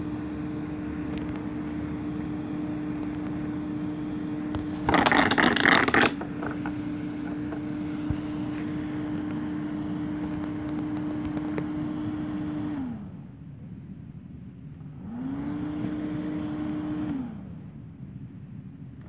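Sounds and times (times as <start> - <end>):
electric fan motor humming: 0.0 - 19.0.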